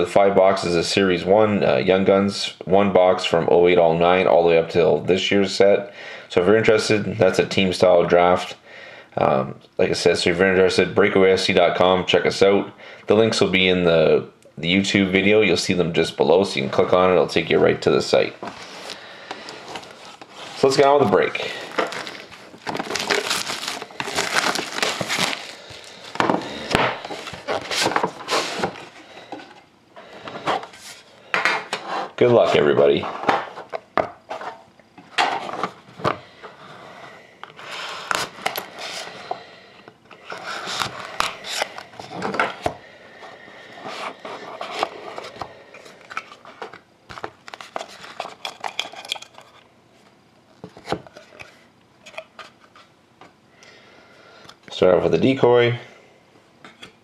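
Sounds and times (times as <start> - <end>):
plastic shrink wrap crinkling: 18.5 - 29.0.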